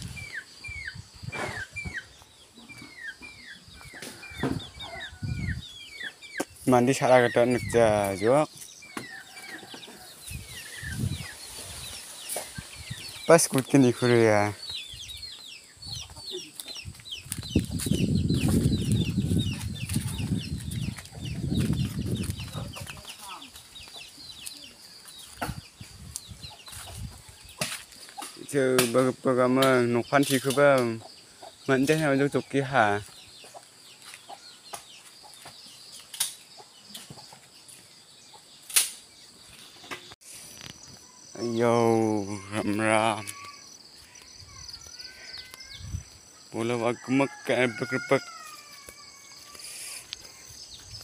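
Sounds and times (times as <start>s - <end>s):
chicks peeping: 0.0s - 28.6s, 29.4s - 38.6s
microphone jostling rumble: 16.8s - 23.1s.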